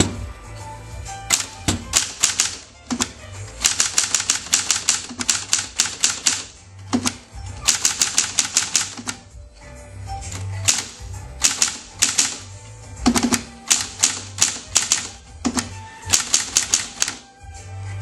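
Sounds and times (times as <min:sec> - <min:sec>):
typewriter keystrokes: 0:01.3 - 0:09.2, 0:10.3 - 0:17.2.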